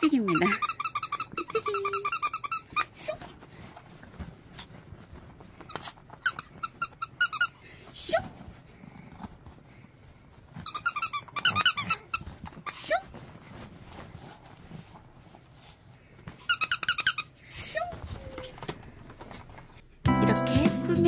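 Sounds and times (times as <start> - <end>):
plush toy squeaker squeaking: 0.0 - 3.0, 6.2 - 7.6, 10.6 - 12.8, 16.4 - 17.3.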